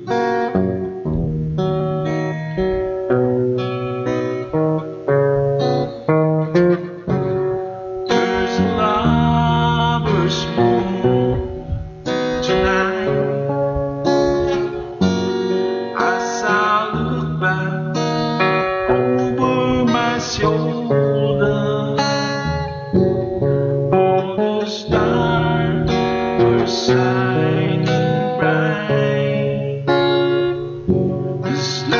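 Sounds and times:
acoustic guitar strumming: 0.0 - 31.9
man singing: 8.1 - 14.4, 15.6 - 22.9, 24.0 - 30.7, 31.3 - 31.9.

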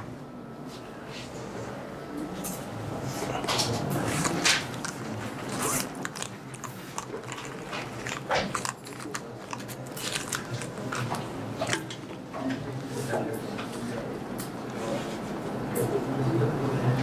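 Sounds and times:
small clicks and crackles: 3.5 - 12.6.

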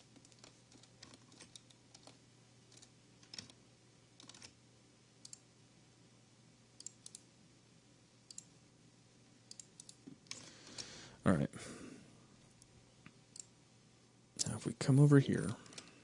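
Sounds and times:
low steady hum: 0.0 - 16.0
mouse and keyboard clicks: 0.2 - 3.6, 4.2 - 4.6, 9.5 - 10.9.

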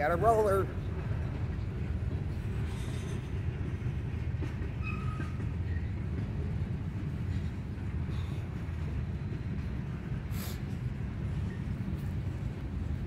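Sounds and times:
freight train rumbling past: 0.0 - 13.0.

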